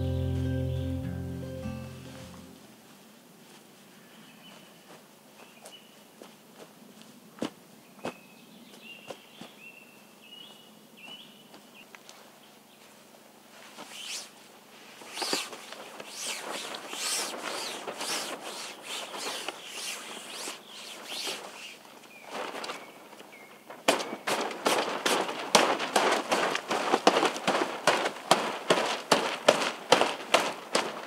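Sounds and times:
faint high bird-like notes: 0.0 - 2.6
footsteps crunching and rustling: 2.1 - 9.7, 10.4 - 31.0.

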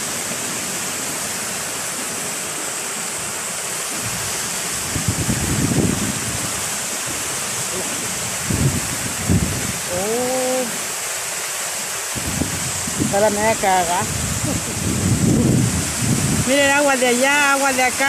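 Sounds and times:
floodwater rushing: 0.0 - 18.0
low buffeting rumble: 7.6 - 10.6, 12.2 - 16.7.

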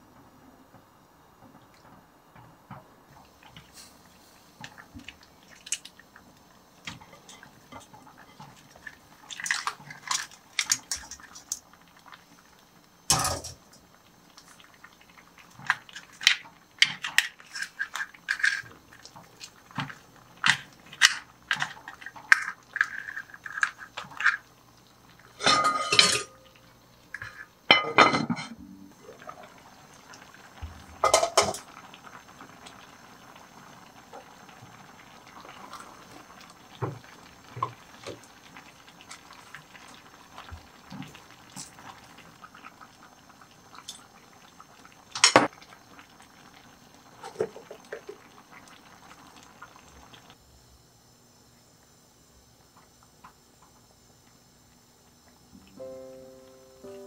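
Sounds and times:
pot lid clattering: 25.4 - 26.4
utensils clinking against pot: 25.4 - 26.4
low hiss: 54.0 - 57.0.

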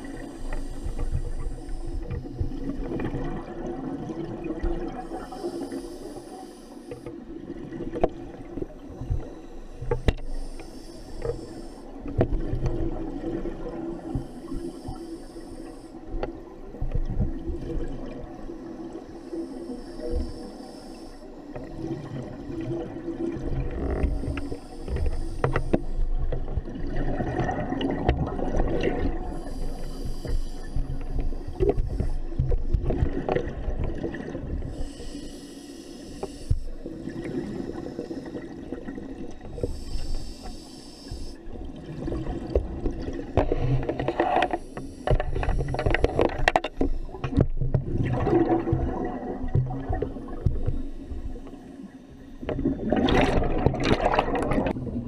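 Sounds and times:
regulator inhalation hiss: 0.0 - 2.7, 5.0 - 7.2, 9.1 - 12.1, 14.0 - 16.1, 18.6 - 21.4, 24.0 - 26.2, 29.2 - 32.4, 34.7 - 38.8, 39.5 - 41.5, 44.5 - 45.8
exhaled air bubbling: 0.0 - 6.4, 7.0 - 15.1, 16.4 - 20.6, 21.2 - 40.5, 41.1 - 55.0.

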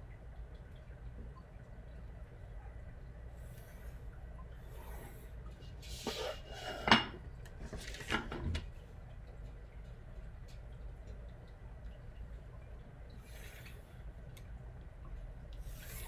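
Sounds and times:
pencil scratching along a ruler: 15.7 - 16.0.

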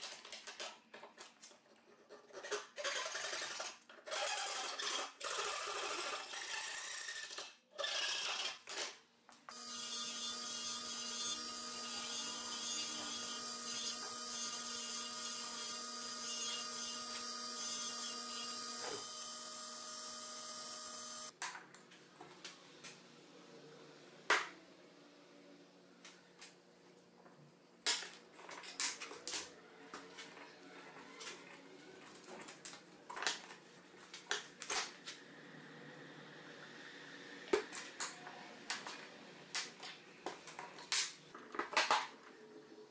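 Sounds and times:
disc sander humming: 9.5 - 21.3.

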